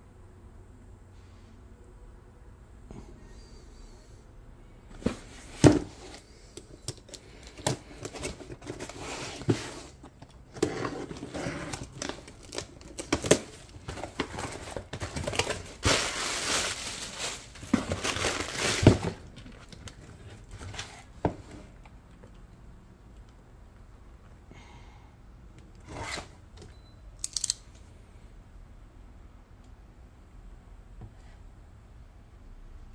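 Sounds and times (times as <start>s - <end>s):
plastic air pillows crinkling: 11.8s - 20.5s.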